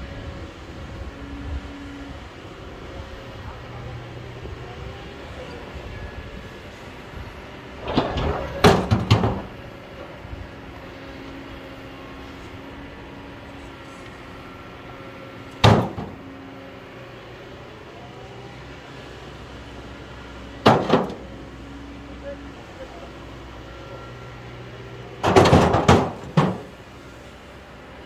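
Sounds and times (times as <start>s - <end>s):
excavator diesel engine running: 0.0s - 28.0s.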